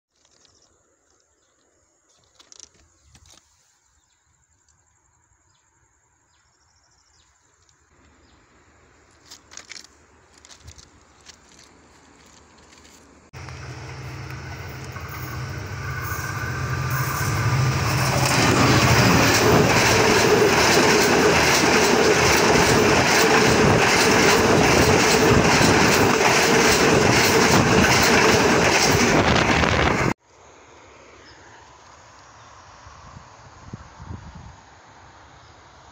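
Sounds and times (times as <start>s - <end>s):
train wheels clattering on rails: 11.2s - 30.2s.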